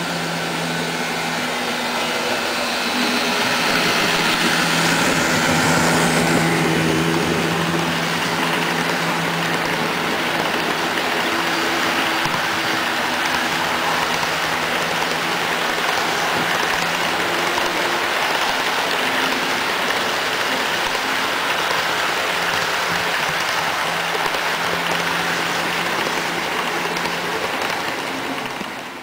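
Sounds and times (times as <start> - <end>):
model train wheels clattering: 2.2 - 29.0.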